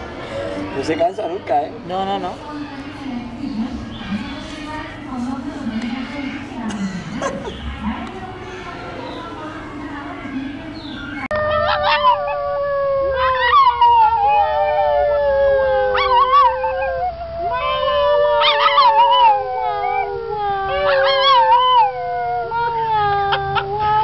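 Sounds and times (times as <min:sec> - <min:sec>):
lower drawn-out howl: 0:10.3 - 0:24.0
puppy howling: 0:11.1 - 0:24.0.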